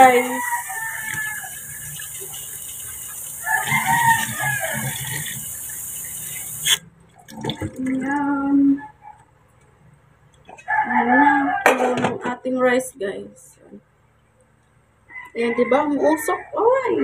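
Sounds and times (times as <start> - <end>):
rooster crowing: 0.0 - 1.8, 3.4 - 5.2, 10.6 - 11.8, 15.1 - 17.0.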